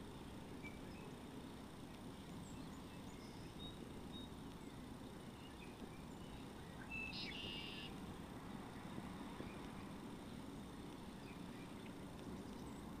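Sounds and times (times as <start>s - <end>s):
high bird chirps: 6.8s - 7.9s.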